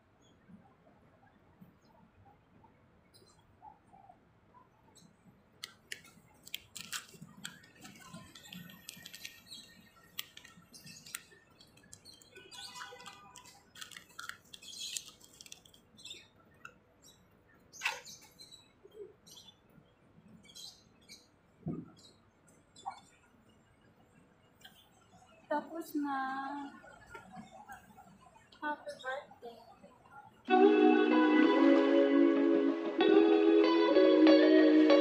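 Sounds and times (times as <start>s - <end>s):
plastic packet crinkling: 5.9s - 15.8s.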